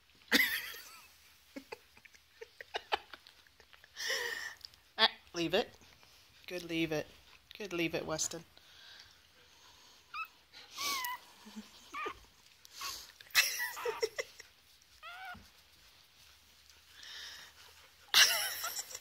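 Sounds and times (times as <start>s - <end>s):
puppy whimpering: 10.1s - 14.3s, 14.9s - 15.5s.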